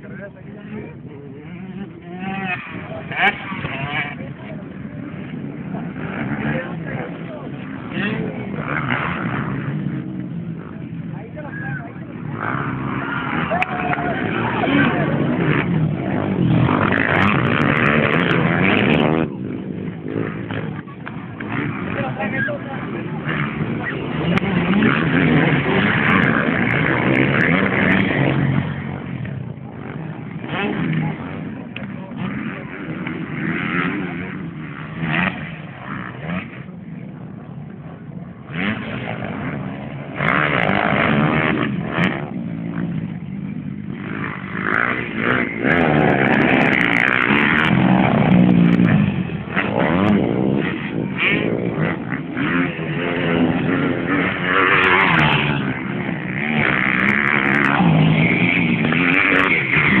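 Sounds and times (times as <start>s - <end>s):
dirt bikes revving and racing past: 0.0s - 60.0s.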